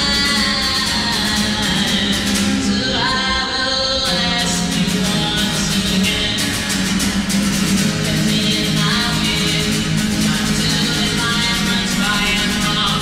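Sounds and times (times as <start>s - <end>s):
man singing: 0.0s - 6.8s, 7.9s - 13.0s
acoustic guitar strumming: 0.0s - 13.0s.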